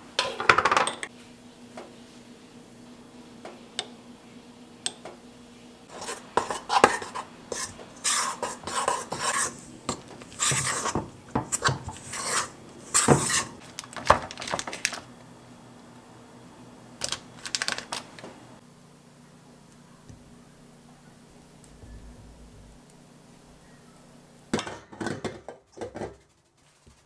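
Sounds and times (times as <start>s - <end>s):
scrapes against metal mixing bowl: 5.9s - 13.6s.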